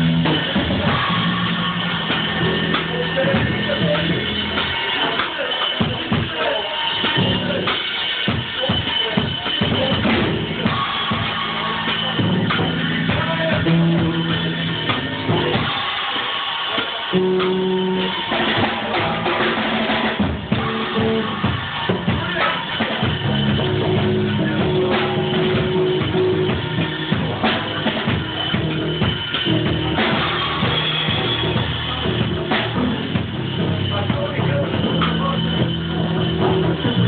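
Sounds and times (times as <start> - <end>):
low bass line: 0.0 - 4.8, 9.7 - 15.7, 17.1 - 18.2, 20.4 - 37.0
drum kit playing drum and bass beat: 0.0 - 37.0.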